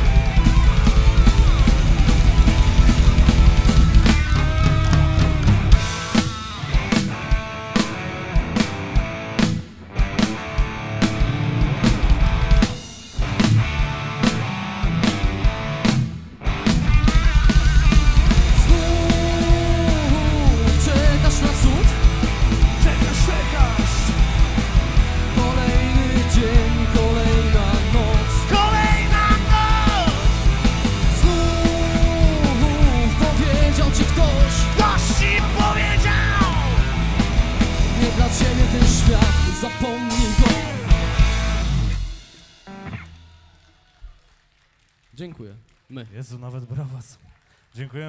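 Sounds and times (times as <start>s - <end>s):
live rock band playing: 0.0s - 44.0s
man shouting and singing: 18.5s - 22.0s, 22.6s - 24.3s, 25.2s - 37.0s, 37.9s - 41.0s.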